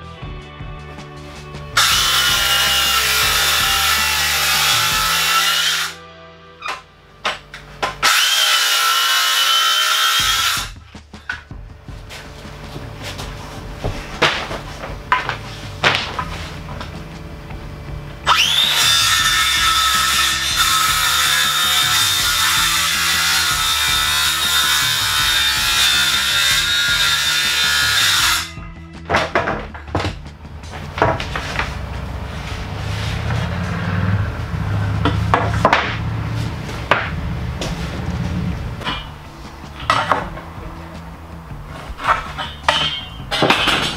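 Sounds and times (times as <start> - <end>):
circular saw whining: 1.8 - 6.8, 7.8 - 11.2, 14.7 - 29.1
low steady hum: 10.8 - 18.6
knocks of wooden floorboards: 29.0 - 31.8.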